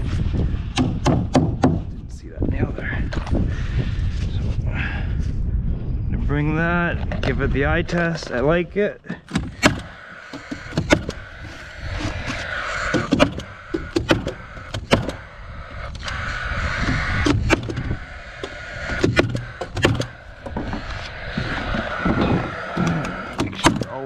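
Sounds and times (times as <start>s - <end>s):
nail gun shots: 9.3s - 9.9s.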